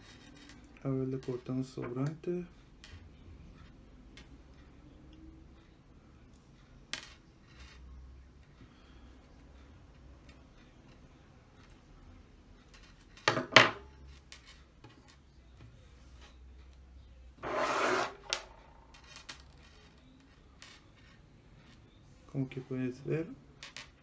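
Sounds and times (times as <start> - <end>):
pliers scraping on table: 17.4 - 21.2.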